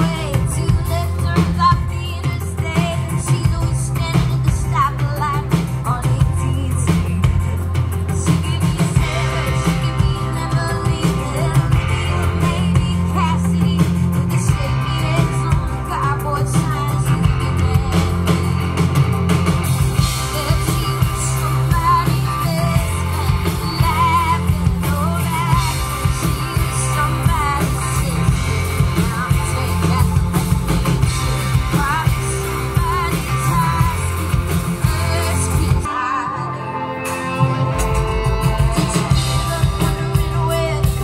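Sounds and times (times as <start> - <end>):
woman singing: 0.0 - 18.8, 20.0 - 41.0
heavy bass line: 0.0 - 35.9, 36.8 - 41.0
guitar: 0.0 - 41.0.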